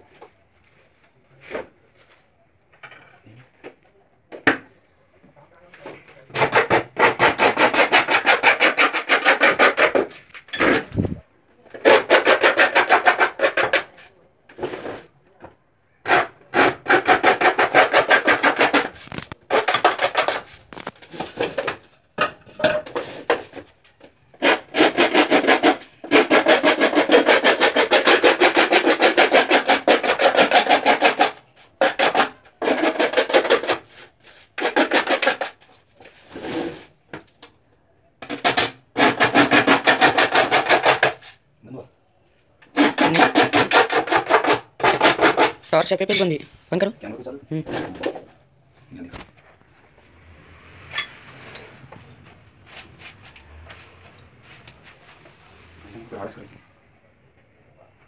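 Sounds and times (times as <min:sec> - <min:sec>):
hand file rasping: 0:06.3 - 0:15.1, 0:16.0 - 0:21.8, 0:22.8 - 0:36.9, 0:38.2 - 0:41.4, 0:42.6 - 0:46.3.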